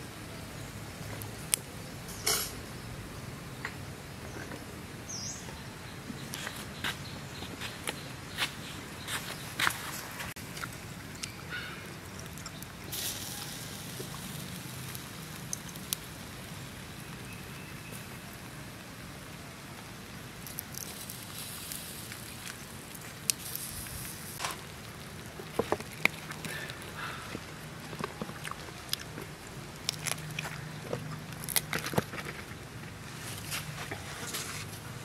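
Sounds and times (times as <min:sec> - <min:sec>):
crackles and clicks: 0:01.0 - 0:02.7, 0:09.5 - 0:34.9
chicken sizzling on a grill: 0:12.0 - 0:27.9.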